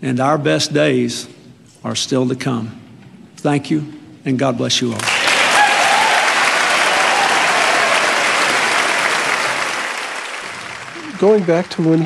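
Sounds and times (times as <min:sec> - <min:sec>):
crowd applauding: 0:05.0 - 0:12.0.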